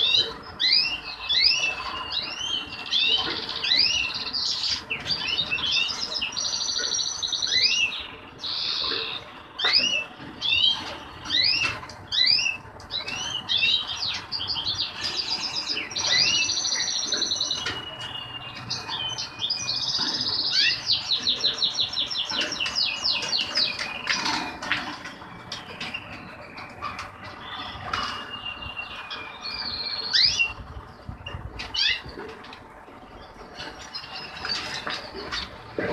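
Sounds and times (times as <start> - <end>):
finches singing: 0.0 - 24.6, 25.2 - 32.2.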